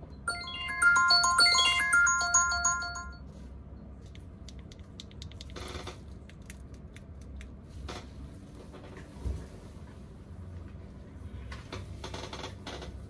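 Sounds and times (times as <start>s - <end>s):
phone ringtone: 0.3s - 3.2s.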